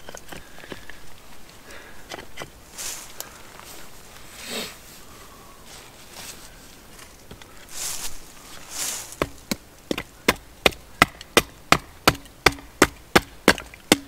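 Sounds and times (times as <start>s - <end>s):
wood chopping strikes: 9.1s - 14.0s.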